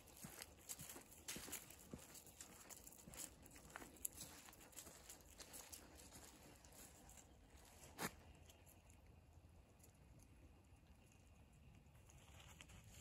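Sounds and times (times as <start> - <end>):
footsteps through dry leaves: 0.0 - 8.3.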